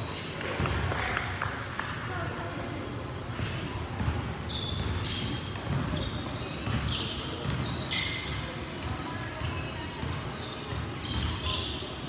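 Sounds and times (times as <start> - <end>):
sneakers squeaking: 0.0 - 1.0, 2.8 - 12.0
basketball bouncing: 3.4 - 11.5.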